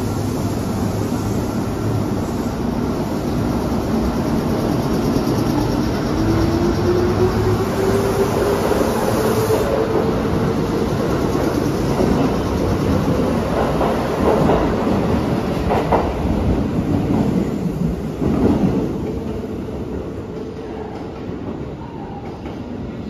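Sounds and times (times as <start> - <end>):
train wheels clacking over rails: 9.7 - 21.6.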